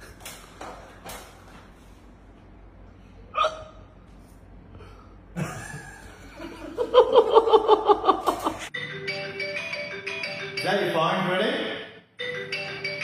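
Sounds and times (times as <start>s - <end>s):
man laughing heartily: 5.4s - 8.7s.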